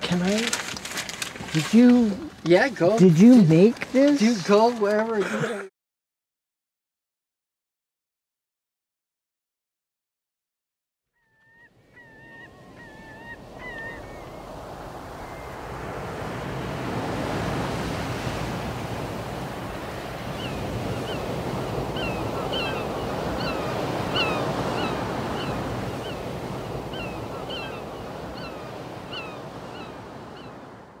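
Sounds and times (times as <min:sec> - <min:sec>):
sea waves: 0:00.0 - 0:05.6, 0:11.7 - 0:31.0
wind: 0:00.0 - 0:05.7, 0:11.2 - 0:31.0
seabirds calling: 0:11.2 - 0:31.0.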